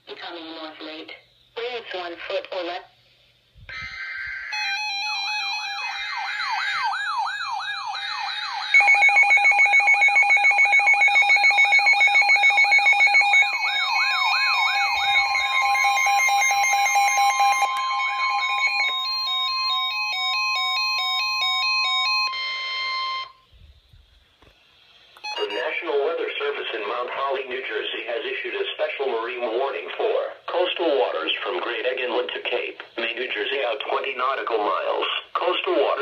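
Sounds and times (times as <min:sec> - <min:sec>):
steady alarm tone: 0:03.7 - 0:23.5, 0:25.2 - 0:27.0
warbling siren: 0:03.7 - 0:23.5
rapid loud beeping: 0:03.8 - 0:23.4, 0:25.2 - 0:26.6.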